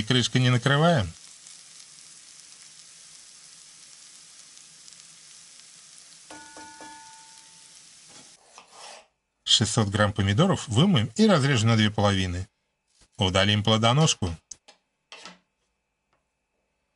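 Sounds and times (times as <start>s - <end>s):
vegetables sizzling in oil: 0.0s - 8.4s.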